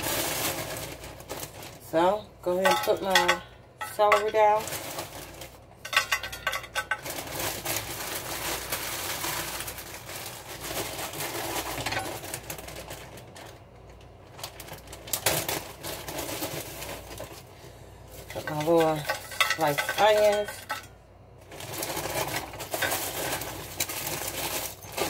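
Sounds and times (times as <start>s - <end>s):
plastic bags crinkling: 0.0s - 25.0s.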